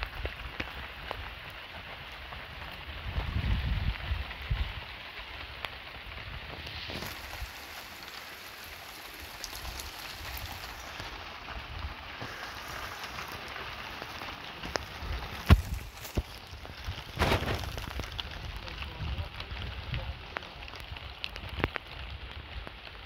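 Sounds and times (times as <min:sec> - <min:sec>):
rain pattering: 0:00.0 - 0:23.0.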